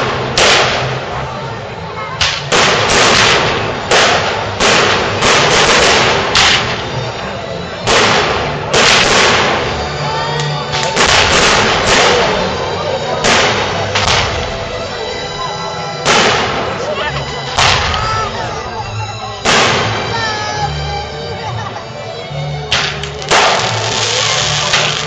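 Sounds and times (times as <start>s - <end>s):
fireworks shells bursting: 10.6s - 12.6s, 22.8s - 25.0s.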